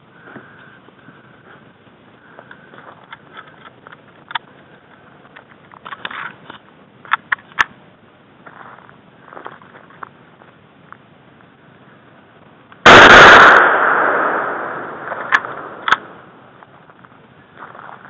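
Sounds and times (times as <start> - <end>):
sharp clicks: 15.0 - 16.2
footsteps through dry grass: 16.5 - 18.0.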